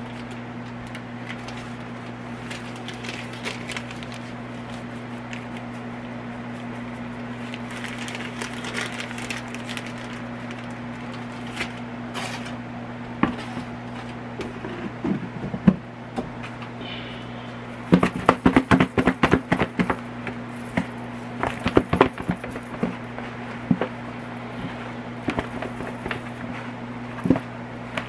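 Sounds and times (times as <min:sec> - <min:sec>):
plastic glove rustling: 0:00.0 - 0:12.6
steady low hum: 0:00.0 - 0:28.0.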